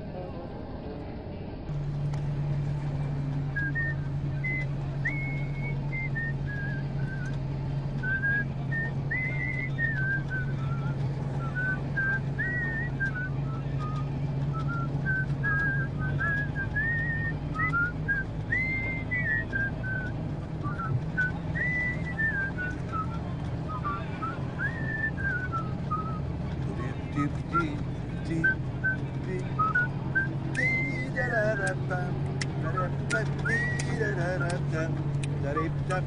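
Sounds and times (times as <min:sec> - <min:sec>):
vehicle hum: 0:00.0 - 0:36.0
person whistling a tune: 0:03.6 - 0:07.3, 0:08.0 - 0:26.2, 0:29.6 - 0:31.2, 0:32.7 - 0:34.5.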